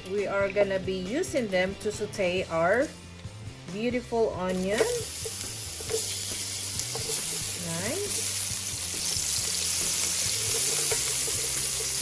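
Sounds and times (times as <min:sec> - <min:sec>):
onions sizzling in a frying pan: 0:04.3 - 0:12.0.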